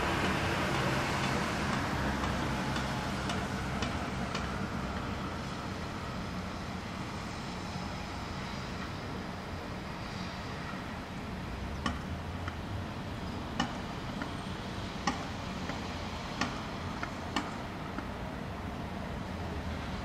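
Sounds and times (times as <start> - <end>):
distant city traffic rumble: 0.0 - 20.0.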